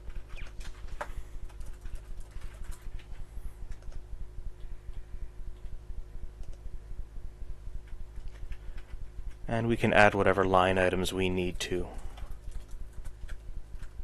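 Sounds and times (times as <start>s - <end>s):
keyboard typing: 0.0s - 4.0s, 7.8s - 9.4s, 11.9s - 14.0s
steady low hum: 0.0s - 14.0s
mouse clicking: 6.4s - 6.6s.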